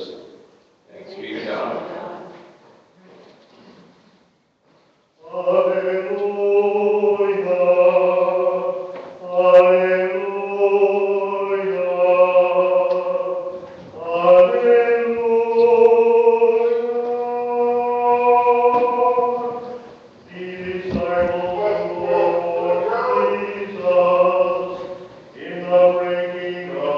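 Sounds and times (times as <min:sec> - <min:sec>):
men singing plainchant: 0:05.2 - 0:26.9.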